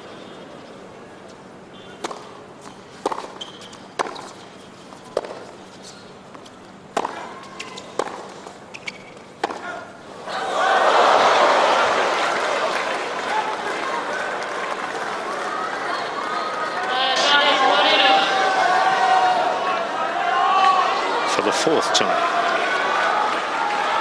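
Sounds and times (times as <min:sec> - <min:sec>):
tennis racket striking ball: 0:02.0 - 0:02.3, 0:03.0 - 0:04.4, 0:05.2 - 0:05.5, 0:06.9 - 0:08.4, 0:09.0 - 0:09.7
tennis ball bouncing: 0:02.0 - 0:09.8
crowd cheering and applauding: 0:10.3 - 0:24.0.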